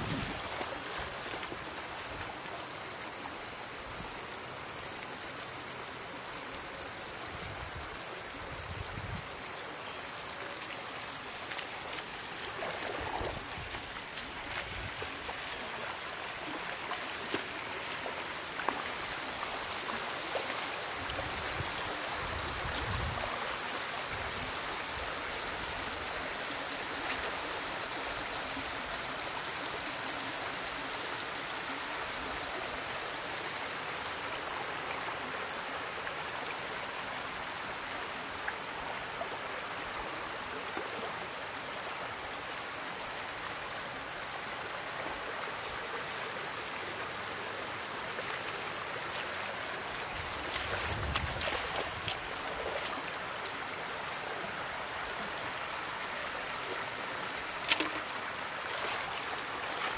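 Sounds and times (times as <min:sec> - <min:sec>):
water splashes: 0:00.0 - 0:02.6, 0:10.6 - 0:28.7, 0:47.2 - 0:59.9
flowing water rushing: 0:00.0 - 0:59.9.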